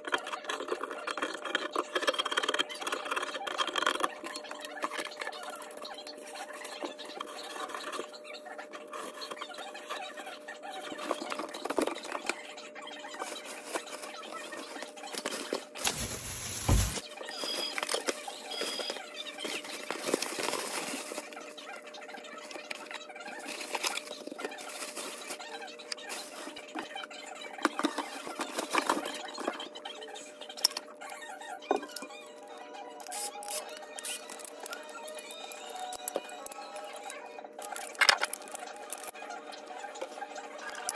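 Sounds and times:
cloth and plastic wrap rustling: 13.2s - 21.6s.

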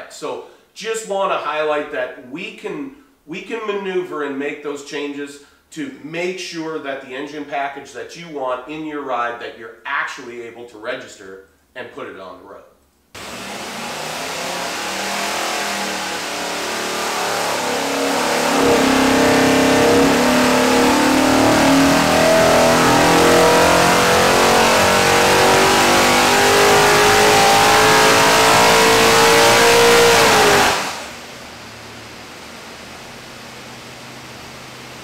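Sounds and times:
engine revving at full throttle: 13.2s - 35.0s.

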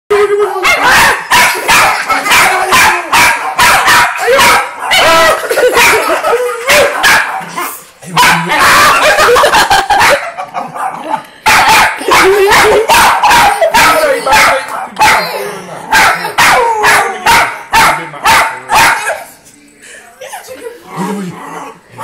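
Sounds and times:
small dog barking and yapping: 0.6s - 5.2s.

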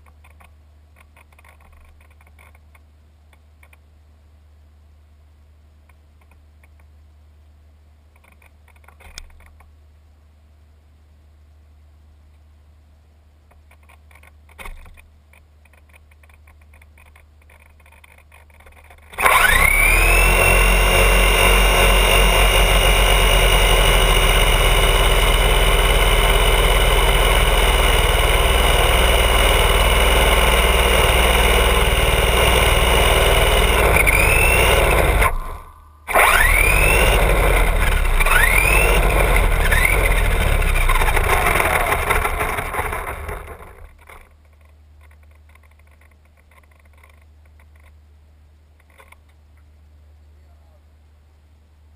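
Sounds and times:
electric toy car motor whining: 19.1s - 44.2s.

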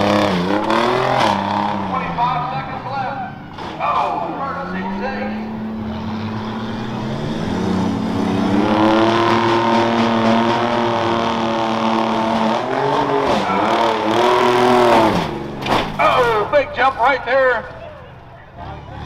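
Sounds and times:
pickup truck engine revving: 0.0s - 17.8s.

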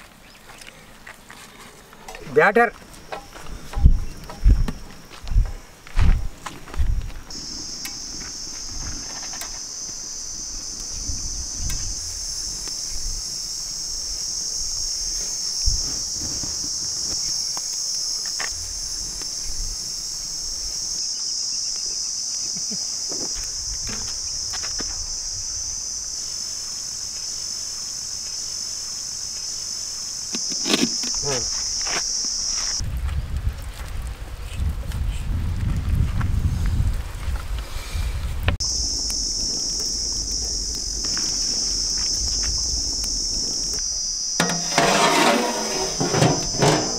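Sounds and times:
insects droning: 0.0s - 33.6s, 35.9s - 46.9s
metal pot knocking: 44.4s - 46.9s.

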